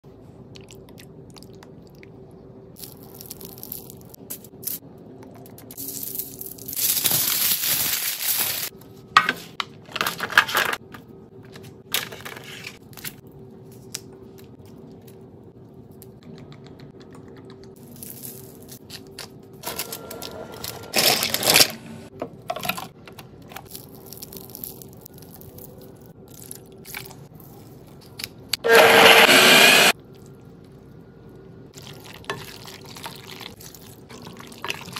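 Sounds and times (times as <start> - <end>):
food crunching and tearing: 2.8 - 4.3, 23.6 - 28.5.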